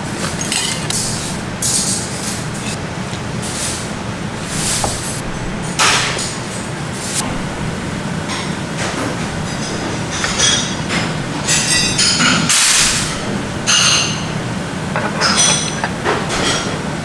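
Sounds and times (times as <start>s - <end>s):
steady low hum: 0.0s - 17.0s
cutlery clinking against bowls: 0.2s - 2.8s, 15.0s - 16.8s.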